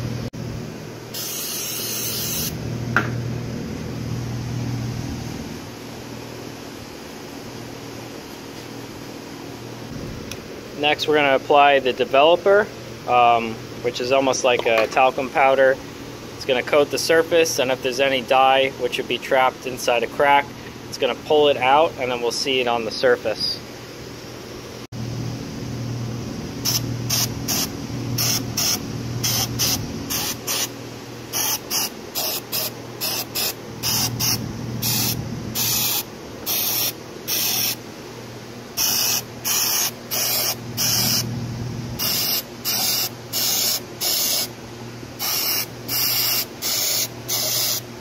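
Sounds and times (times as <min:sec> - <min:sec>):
aerosol spray hissing bursts: 0:01.2 - 0:02.6, 0:26.6 - 0:30.7, 0:31.3 - 0:37.8, 0:38.8 - 0:41.3, 0:42.0 - 0:44.5, 0:45.2 - 0:47.9.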